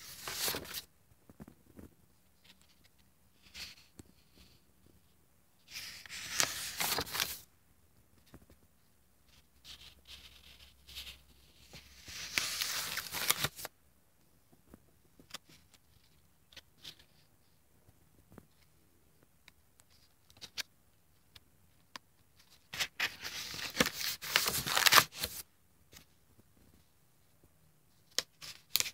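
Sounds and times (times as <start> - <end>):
paper pages rustling: 0.0 - 0.9, 5.7 - 7.4, 9.6 - 13.7, 22.4 - 25.4.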